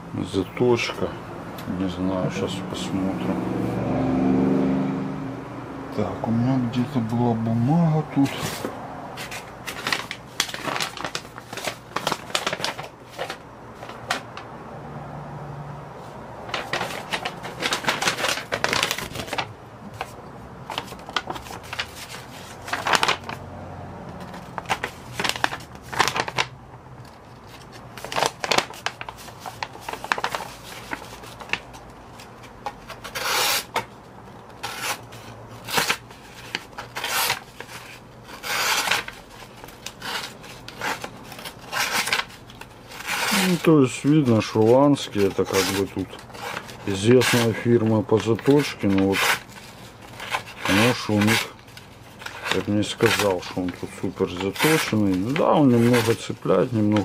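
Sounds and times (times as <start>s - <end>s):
paper rustling: 8.2s - 14.4s, 16.0s - 23.4s, 24.1s - 57.0s
knife slicing and tearing paper: 9.2s - 13.4s, 16.5s - 19.5s, 24.7s - 26.4s, 28.0s - 33.9s, 34.6s - 51.6s, 52.2s - 57.0s.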